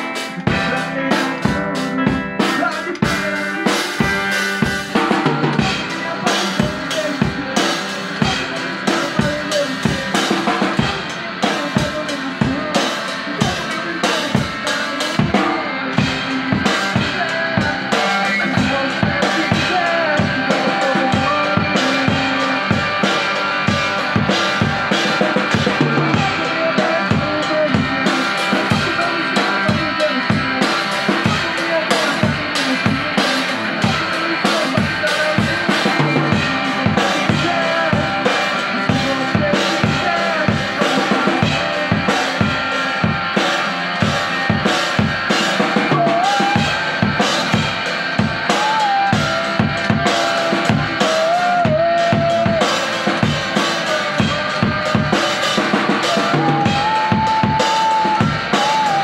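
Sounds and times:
drum kit rock beat: 0:00.0 - 0:59.0
electric guitar through amplifier: 0:00.0 - 0:59.0.

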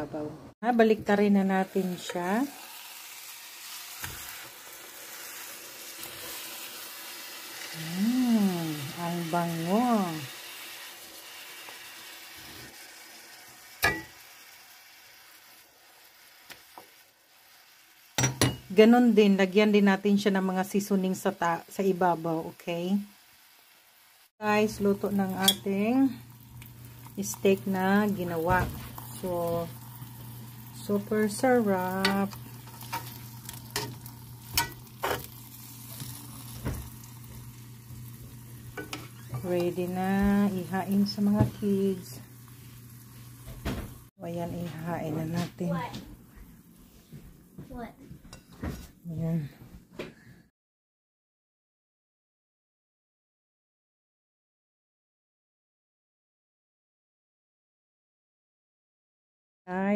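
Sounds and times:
steak sizzling in a skillet: 0:01.5 - 0:18.7, 0:23.0 - 0:44.1
metal fork clinking on pan: 0:13.8 - 0:14.1, 0:25.4 - 0:25.6, 0:32.8 - 0:35.3, 0:38.8 - 0:39.1.

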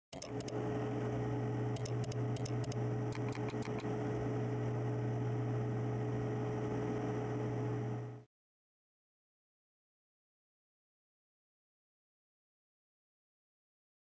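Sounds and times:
low hum: 0:00.1 - 0:08.3
high steady tone: 0:01.8 - 0:03.9
short sharp clicks: 0:01.8 - 0:03.9.

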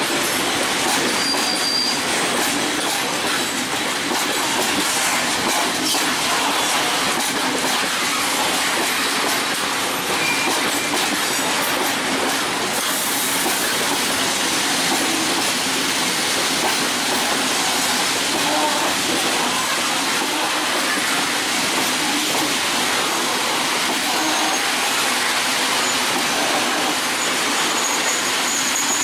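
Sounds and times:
train wheels rumbling on rail: 0:00.0 - 0:29.0
wheel squeal: 0:00.9 - 0:02.1, 0:10.1 - 0:11.0, 0:27.2 - 0:29.0.

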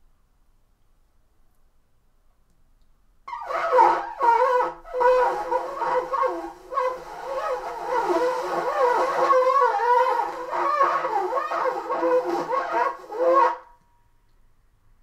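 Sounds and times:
alto saxophone melody: 0:03.3 - 0:13.7.

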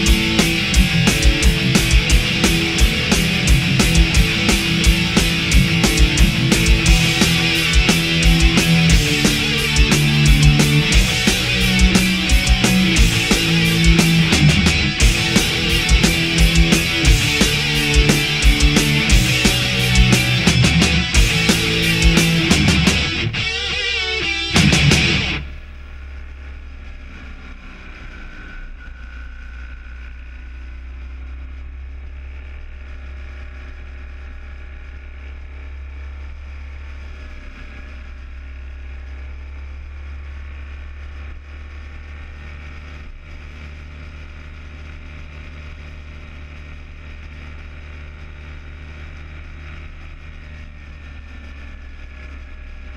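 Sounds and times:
motorcycle engine: 0:00.0 - 0:29.3.

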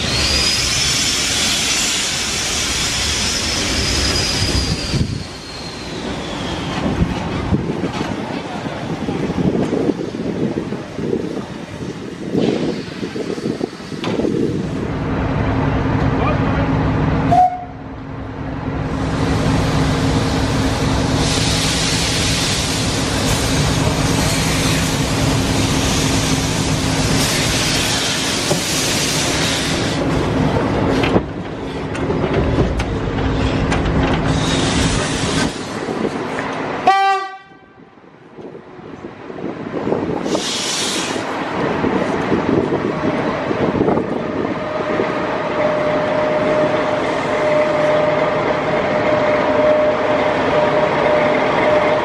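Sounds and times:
loud steam hiss: 0:00.0 - 0:07.0, 0:11.0 - 0:14.9, 0:19.0 - 0:30.1, 0:34.2 - 0:36.0, 0:40.1 - 0:41.6
locomotive running gear rumbling: 0:28.4 - 0:36.8.

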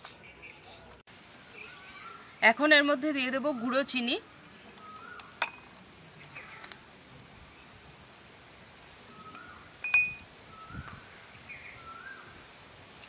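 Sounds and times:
bird chirps: 0:03.5 - 0:06.7, 0:09.1 - 0:12.4
spoon clinking against glass: 0:05.4 - 0:05.7, 0:09.8 - 0:10.2.

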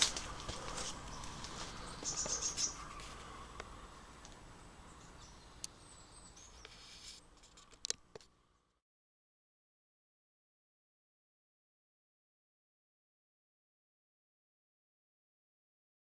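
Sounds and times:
birds chirping: 0:00.0 - 0:08.7.

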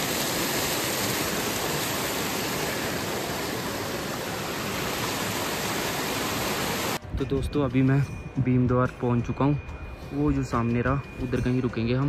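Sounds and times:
running water rushing: 0:00.0 - 0:07.0.

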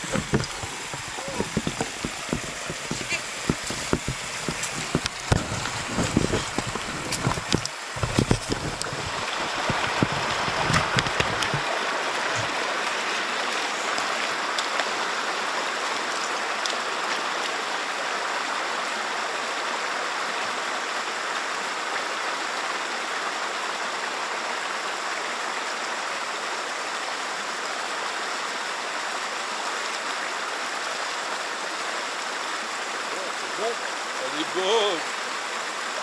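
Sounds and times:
boots wading through water: 0:00.0 - 0:17.6
stream rushing over cascades: 0:00.0 - 0:36.0.

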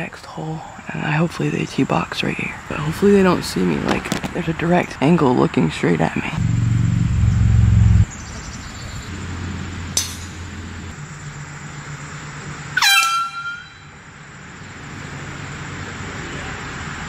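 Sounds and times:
loud low hum: 0:06.4 - 0:15.6
air horn blast: 0:12.8 - 0:13.9.

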